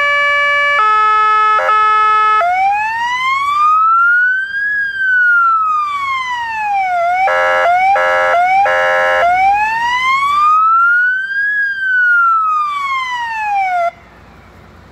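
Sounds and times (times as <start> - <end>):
short horn blasts: 0.0 - 2.4, 7.3 - 9.4
fire engine siren wailing: 0.0 - 14.8.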